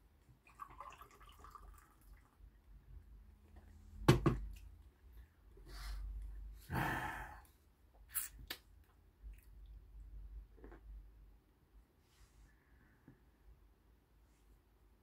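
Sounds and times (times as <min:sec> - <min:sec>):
man sighing: 0:06.7 - 0:07.5.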